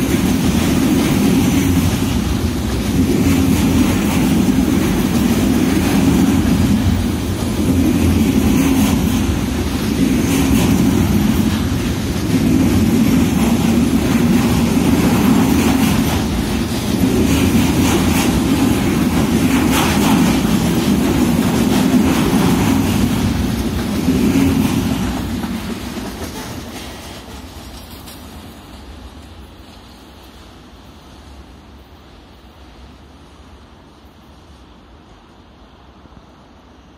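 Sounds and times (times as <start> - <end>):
wheels clacking over rail joints: 0.0 - 28.7
train wheels rumbling on rail: 0.0 - 36.9.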